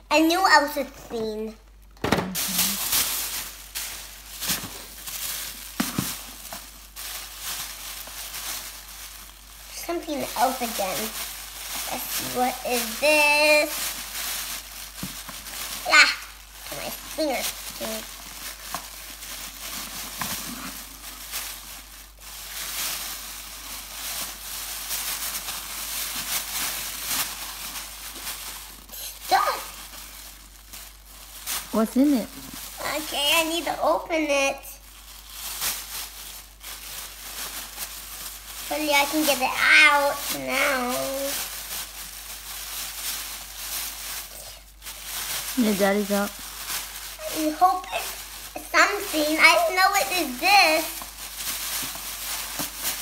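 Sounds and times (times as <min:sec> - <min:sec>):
plastic bag crinkling: 0:00.6 - 0:53.0.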